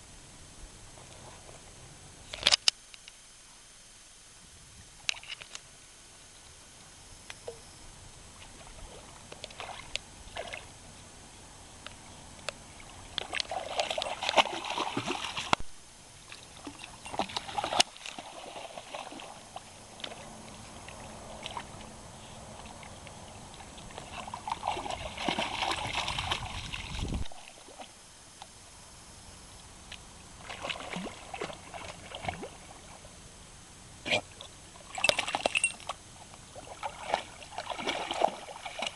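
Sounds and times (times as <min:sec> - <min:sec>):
puppy splashing in shallow water: 0:08.4 - 0:10.8, 0:12.7 - 0:15.6, 0:16.2 - 0:28.0, 0:30.3 - 0:33.1, 0:34.1 - 0:38.9.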